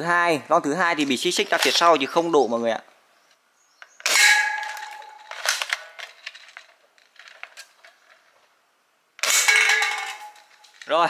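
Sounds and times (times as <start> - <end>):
cans clinking and rattling: 9.2 - 11.0
pellet hitting metal can clang: 9.3 - 10.5.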